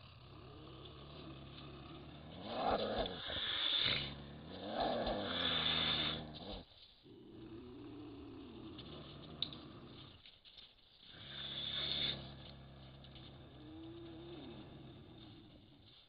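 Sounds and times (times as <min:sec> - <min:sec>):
mountain lion growling: 0:00.0 - 0:10.4, 0:11.0 - 0:16.0
hissing rasp: 0:01.6 - 0:06.6, 0:11.1 - 0:12.4.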